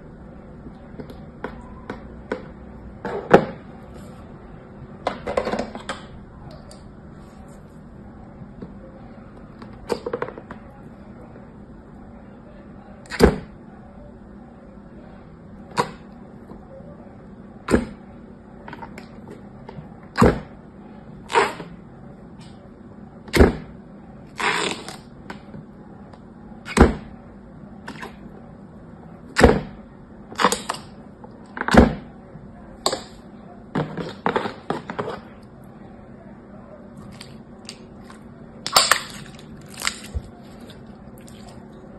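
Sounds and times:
faint steady hum: 0:00.0 - 0:41.9
sticky slime pops: 0:37.1 - 0:40.3.

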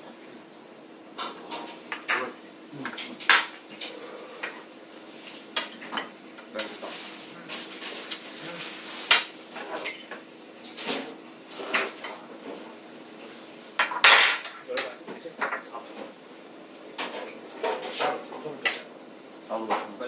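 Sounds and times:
cutlery clinking on plates: 0:13.8 - 0:14.9.

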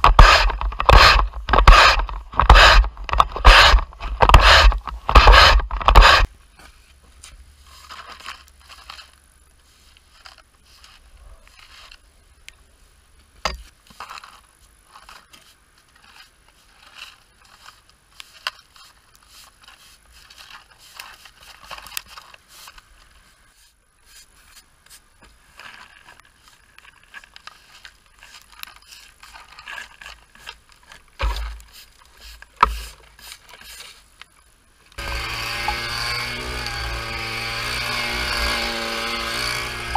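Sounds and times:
plastic dustpan scraping tarmac: 0:23.5 - 0:34.2
heavy thumps: 0:31.2 - 0:31.7.

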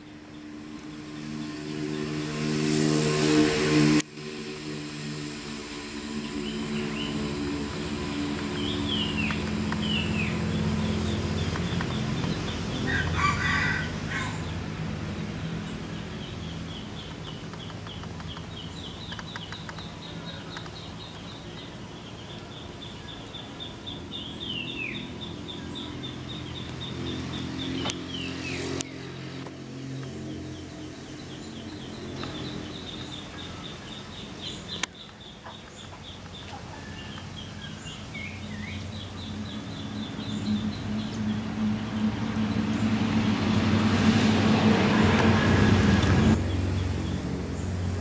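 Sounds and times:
low engine hum: 0:00.0 - 0:48.0
small birds calling: 0:06.1 - 0:43.0
rooster crowing: 0:12.8 - 0:14.6, 0:36.6 - 0:37.8.

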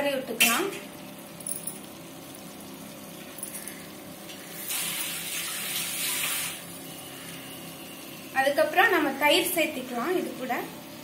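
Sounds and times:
faint food sizzling: 0:00.0 - 0:11.0
water running: 0:00.2 - 0:11.0.

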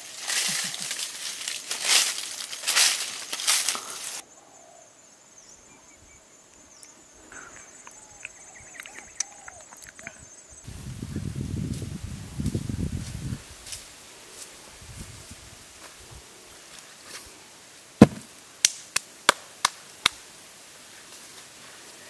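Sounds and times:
rustling and crunching of dry grass: 0:00.0 - 0:04.2, 0:10.7 - 0:17.4, 0:20.6 - 0:22.0
faint chirps and clicks: 0:06.5 - 0:10.3.

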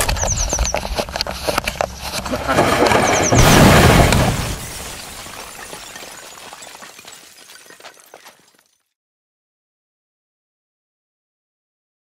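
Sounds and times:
scattered crackles: 0:00.0 - 0:06.0
loud blast with crashing: 0:02.5 - 0:05.4.

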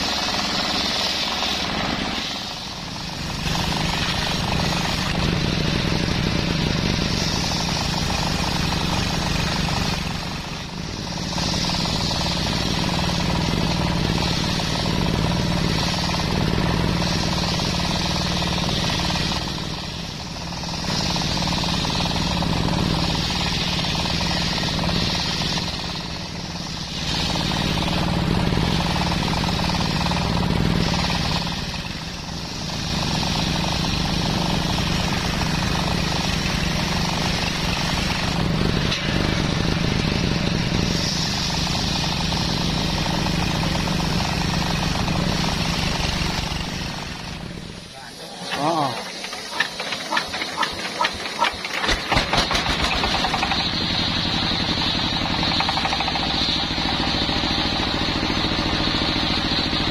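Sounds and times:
table saw running hum: 0:00.0 - 0:19.8
saw cutting log: 0:00.0 - 0:59.9.

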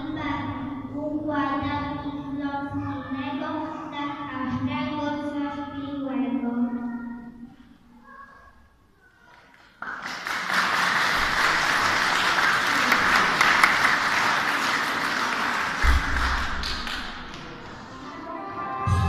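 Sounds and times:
audience clapping: 0:09.3 - 0:17.9
low thump: 0:15.8 - 0:16.6.

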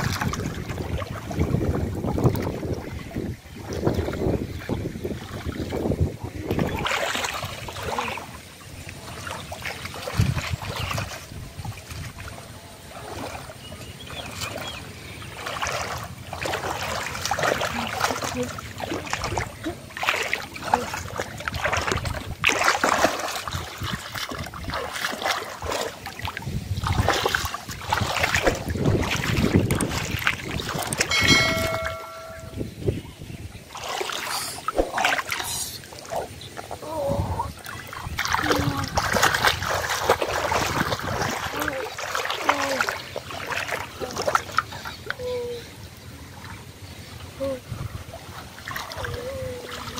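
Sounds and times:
muddy water splashing: 0:00.0 - 0:49.9
short electronic beep: 0:31.1 - 0:32.7.

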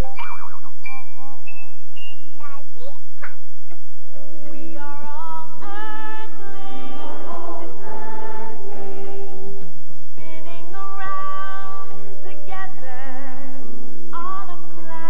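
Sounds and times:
instrumental backing: 0:00.0 - 0:15.0
backing vocals: 0:04.4 - 0:15.0
woman singing: 0:04.5 - 0:09.5, 0:10.2 - 0:15.0.

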